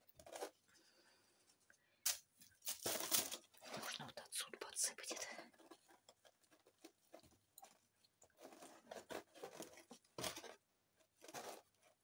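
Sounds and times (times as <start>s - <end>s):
potting mix crunching and rustling: 2.1s - 4.2s, 5.4s - 12.0s.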